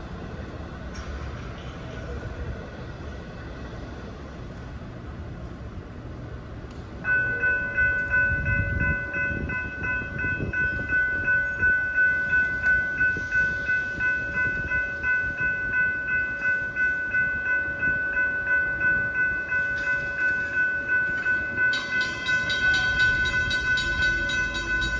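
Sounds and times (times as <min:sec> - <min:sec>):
crossing warning bell ringing: 0:06.9 - 0:24.9
sharper-toned bell: 0:07.0 - 0:24.9.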